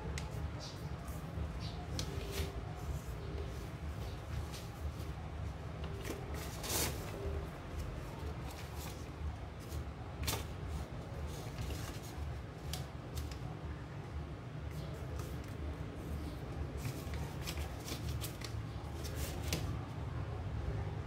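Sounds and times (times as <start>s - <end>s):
steady low hum: 0.0s - 21.0s
paper rustling and crackling: 0.2s - 5.2s, 5.8s - 13.5s, 16.2s - 19.8s.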